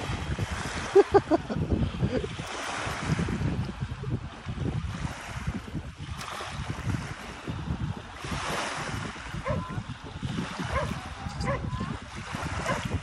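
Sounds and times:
wind buffeting microphone: 0.0s - 13.0s
small waves lapping on pebbles: 2.3s - 3.4s, 4.4s - 13.0s.

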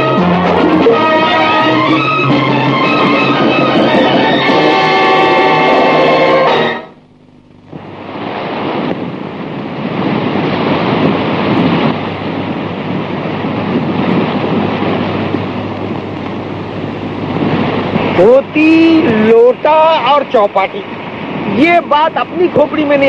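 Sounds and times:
film score music: 0.0s - 7.1s
surf: 0.0s - 23.0s
wind: 0.0s - 23.0s.

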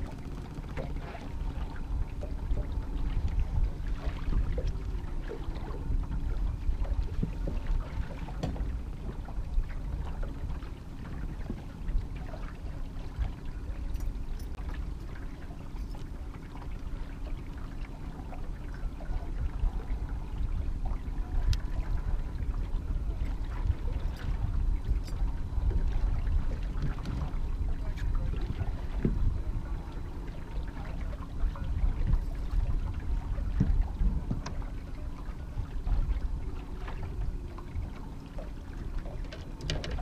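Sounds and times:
faint boat motor hum: 0.0s - 40.0s
water noise: 0.0s - 40.0s
wind noise: 19.1s - 38.0s.

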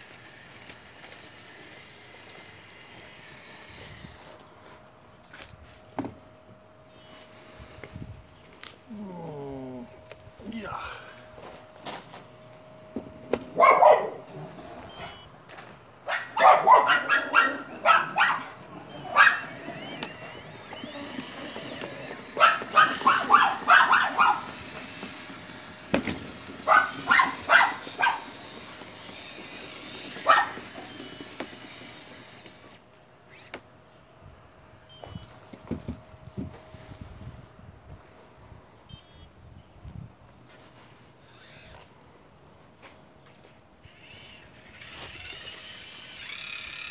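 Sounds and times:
toy excavator motor humming: 0.0s - 4.5s, 16.8s - 33.6s, 36.6s - 46.9s
dog barking: 13.6s - 14.2s, 16.1s - 19.4s, 22.4s - 24.4s, 26.7s - 28.2s, 30.3s - 30.6s.

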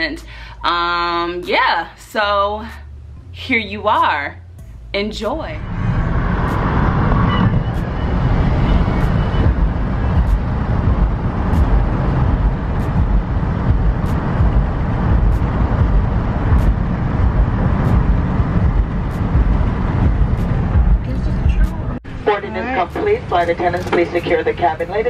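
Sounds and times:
engine and tyre rumble: 5.6s - 25.0s.

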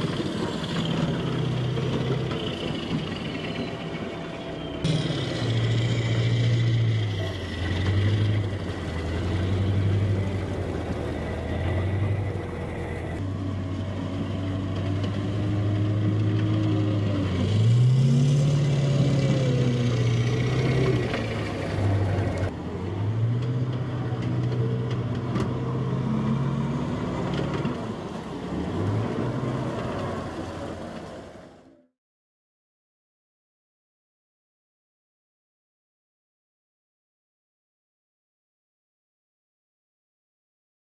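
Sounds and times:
diesel engine low drone: 0.0s - 31.9s.

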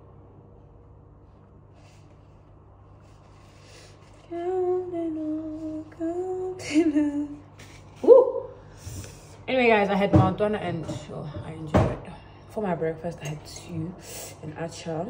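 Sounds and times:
woman humming: 8.0s - 8.6s.

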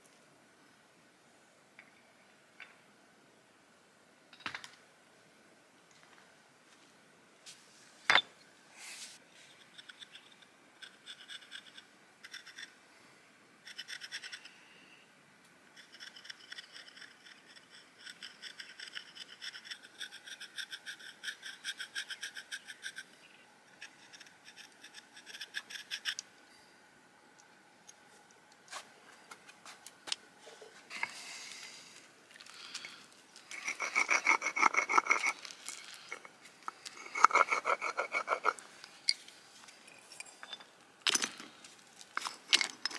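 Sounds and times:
metal tool scratching stone: 9.5s - 12.8s, 13.6s - 14.6s, 15.7s - 26.2s, 33.5s - 39.2s
stone grinding on abrasive slab: 33.5s - 35.5s, 36.9s - 38.6s.

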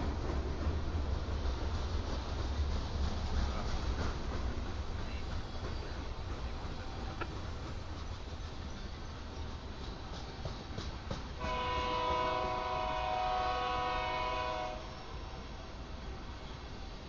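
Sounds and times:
train horn: 11.4s - 15.8s.

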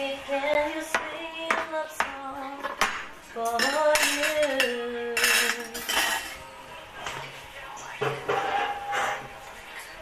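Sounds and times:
plates and cutlery clattering: 2.6s - 7.3s, 8.0s - 9.5s.

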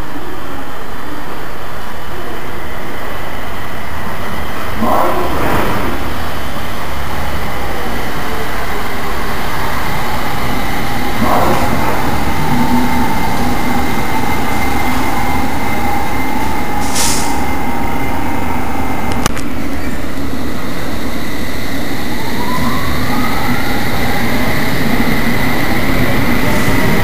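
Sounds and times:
train motor whine: 0.0s - 27.0s
wheels rumbling on rail: 0.0s - 27.0s
air hiss: 16.8s - 17.5s.

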